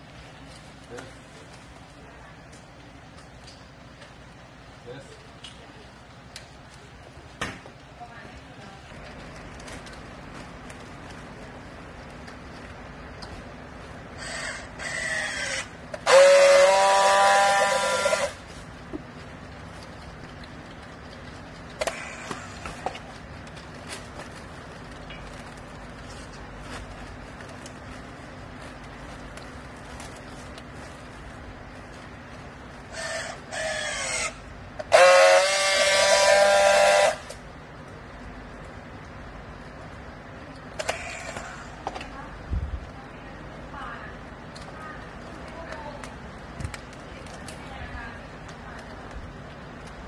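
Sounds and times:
steady welding whine: 0.0 - 50.0
strapping tool motor whirs: 14.2 - 18.5, 32.9 - 37.4, 40.8 - 41.8
strapping tool welding buzz: 14.2 - 18.5, 32.9 - 37.4.

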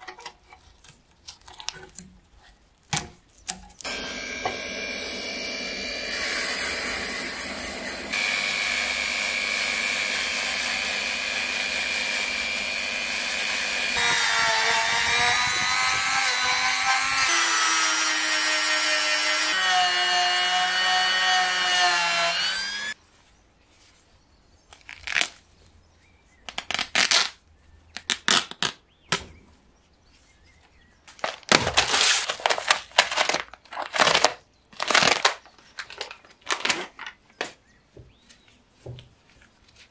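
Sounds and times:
rotary tool whine: 3.8 - 23.0
plastic packaging crinkling: 31.2 - 37.4.

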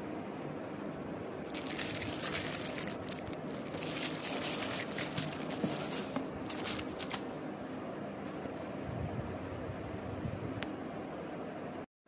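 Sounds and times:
plastic bag crinkling: 1.4 - 7.3.

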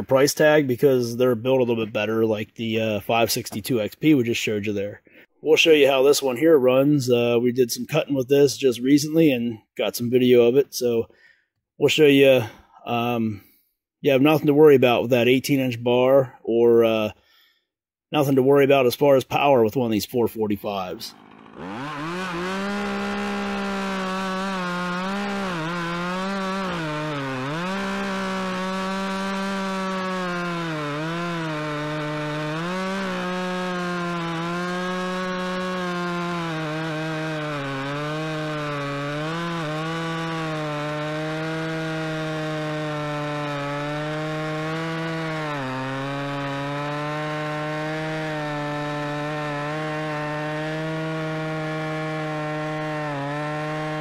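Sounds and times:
chainsaw cutting log: 0.0 - 0.6, 1.4 - 3.9, 20.7 - 54.0.

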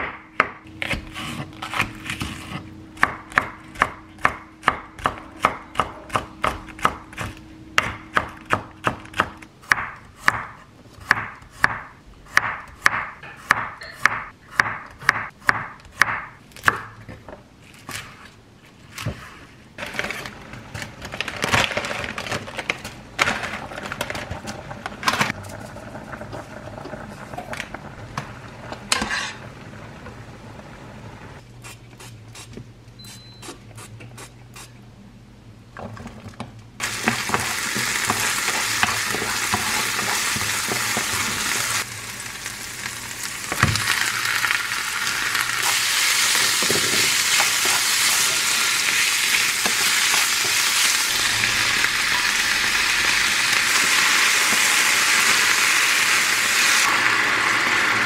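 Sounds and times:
knife chopping on wooden board: 0.0 - 16.9.

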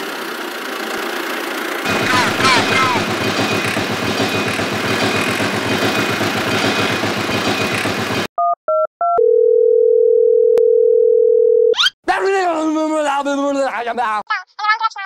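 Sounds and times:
tractor engine chugging: 1.9 - 8.3.

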